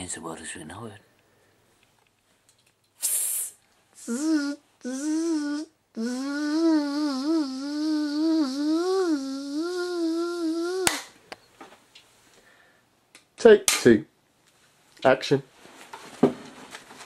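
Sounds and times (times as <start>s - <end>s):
spray can hissing: 3.0s - 3.6s
person humming a high tune: 4.0s - 11.0s.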